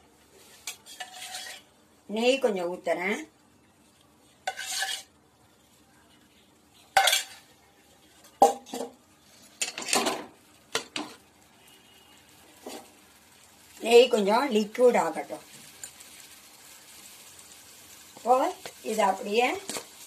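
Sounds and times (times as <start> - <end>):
metal spoon scraping pan: 0.5 - 1.7, 4.4 - 5.1, 6.9 - 7.5.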